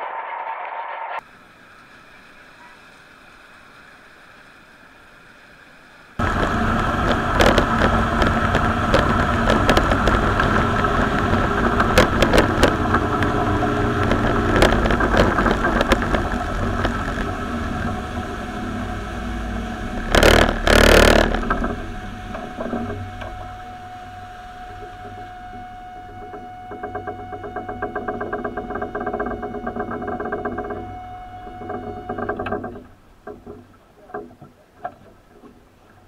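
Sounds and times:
faint steady hum: 1.2s - 36.0s
sharp knocks: 6.2s - 17.3s, 20.1s - 21.8s
outboard motor running: 6.2s - 35.6s.

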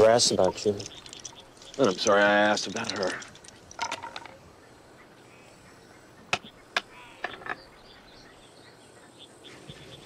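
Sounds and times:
faint outdoor hiss: 0.0s - 10.0s
game pieces clacking on board: 0.7s - 4.4s.

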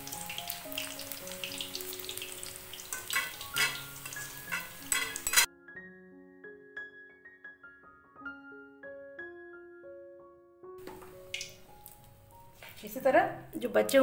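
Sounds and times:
batter deep-frying in oil: 0.0s - 5.5s, 10.8s - 13.0s
soft piano music: 0.0s - 14.0s
oil clicks and pops: 10.8s - 12.1s.

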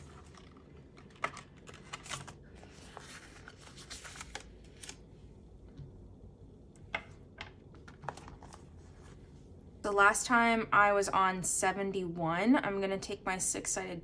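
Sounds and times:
banknotes and plastic envelopes rustling: 0.0s - 5.1s.

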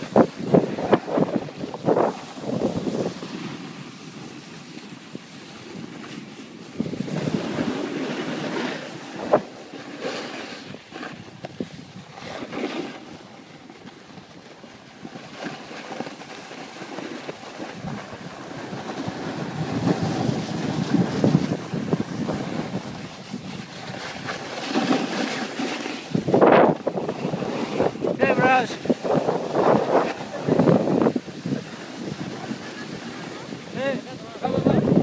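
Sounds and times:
wind buffeting microphone: 0.0s - 4.4s, 5.0s - 9.5s, 17.4s - 35.0s
skis scraping on snow: 0.0s - 35.0s.

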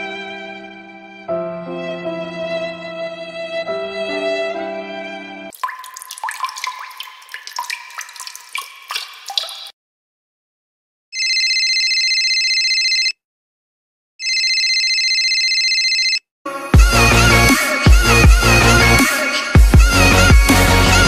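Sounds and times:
water drops plinking: 5.5s - 9.7s
telephone ringing: 11.2s - 13.2s, 14.2s - 16.2s.

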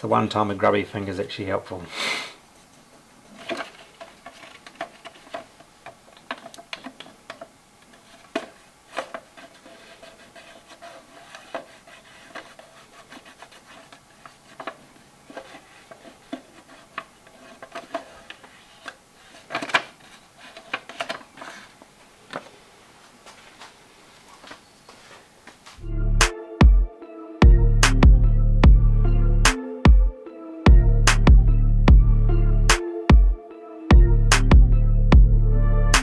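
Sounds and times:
paper card rustling and scratching: 3.3s - 22.5s.

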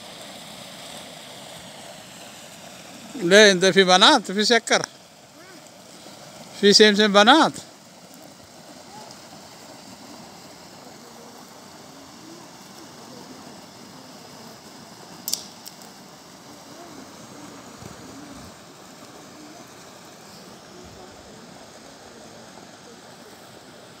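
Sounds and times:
faint indistinct voices: 8.0s - 15.2s, 16.3s - 24.0s
sharp click: 15.2s - 15.8s.

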